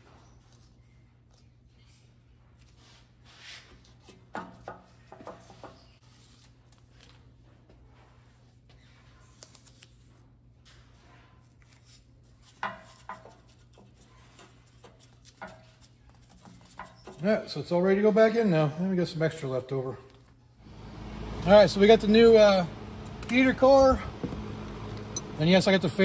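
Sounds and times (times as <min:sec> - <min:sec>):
low fan hum: 0:20.6 - 0:26.0.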